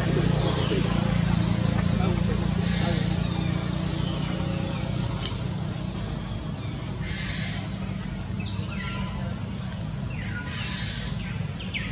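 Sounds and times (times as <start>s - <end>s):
steady low hum: 0.0s - 8.7s
birds chirping: 0.0s - 11.9s.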